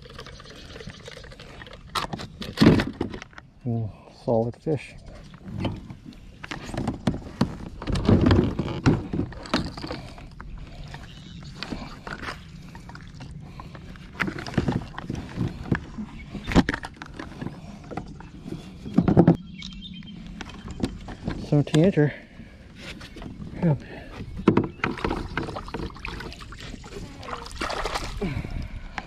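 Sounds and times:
knocks and bumps in plastic kayak: 0:05.5 - 0:10.1, 0:14.1 - 0:19.4, 0:24.2 - 0:28.2.

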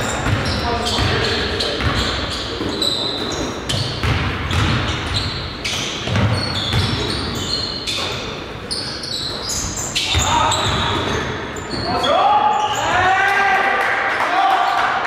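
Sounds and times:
players' voices: 0:00.0 - 0:03.8, 0:06.2 - 0:15.0
basketball bouncing on court: 0:00.0 - 0:08.2, 0:09.3 - 0:11.8
sneaker squeaks: 0:00.0 - 0:13.1.

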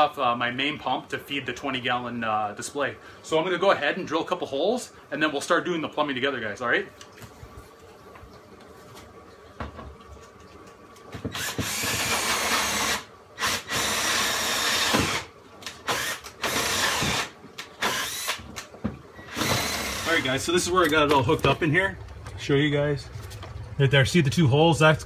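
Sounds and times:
power drill boring: 0:11.3 - 0:18.4, 0:19.2 - 0:20.3.

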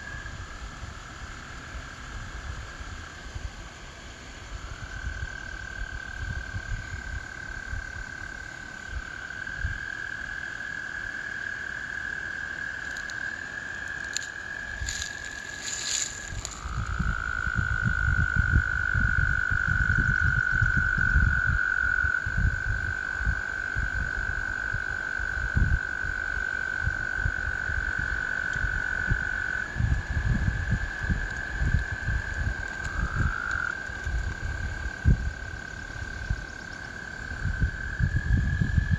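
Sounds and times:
toads trilling: 0:05.2 - 0:38.9
low uneven rumble: 0:12.8 - 0:18.1.

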